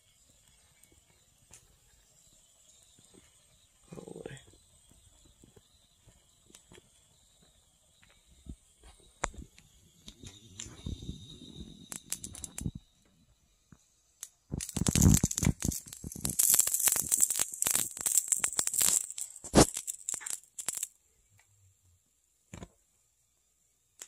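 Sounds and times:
small flame crackling and sizzling: 0.0s - 24.0s
sharp crack: 14.2s - 20.9s.

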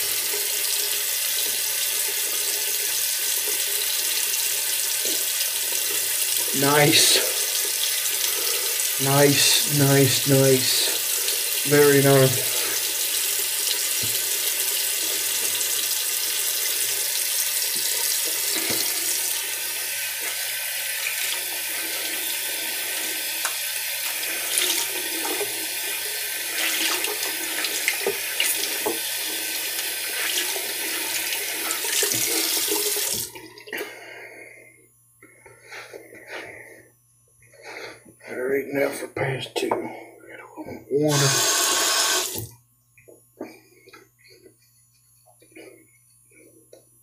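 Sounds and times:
sink tap running: 0.0s - 33.6s, 41.0s - 42.6s.

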